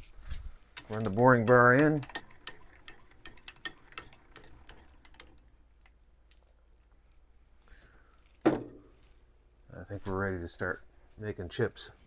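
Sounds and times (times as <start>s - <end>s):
lathe handwheel ticking: 0.8s - 5.9s.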